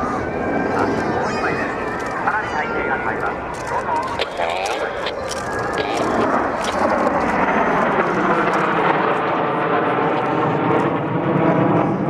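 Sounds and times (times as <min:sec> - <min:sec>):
jet aircraft flying past: 0:00.0 - 0:12.0.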